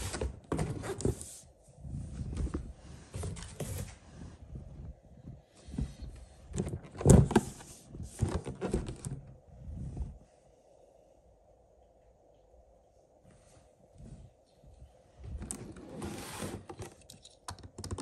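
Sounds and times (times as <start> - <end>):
cardboard box rustling and scraping: 15.8 - 16.8.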